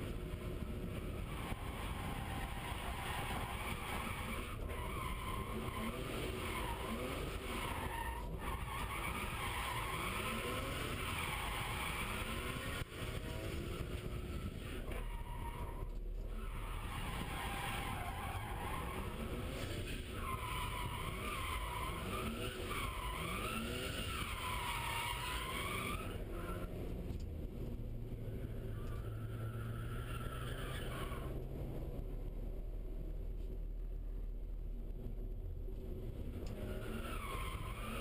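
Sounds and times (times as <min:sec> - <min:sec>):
engine revving: 0:08.9 - 0:15.0, 0:18.7 - 0:32.2.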